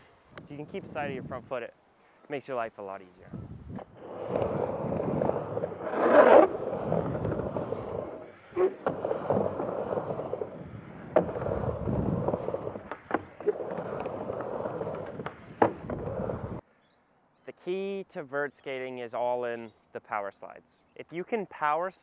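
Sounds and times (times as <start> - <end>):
skateboard wheels rolling on ramp: 3.7 - 16.6
skateboard knocks: 11.1 - 16.2.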